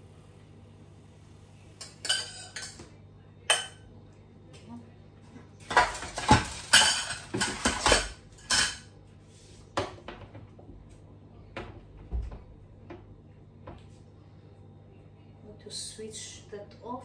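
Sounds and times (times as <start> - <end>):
metal utensils clattering on pans: 1.8 - 2.9, 5.6 - 8.9.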